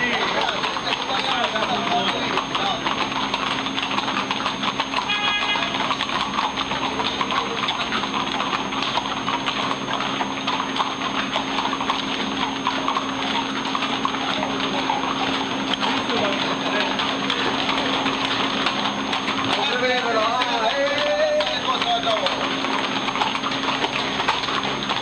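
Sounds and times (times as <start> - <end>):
horse hooves on pavement: 0.0 - 25.0.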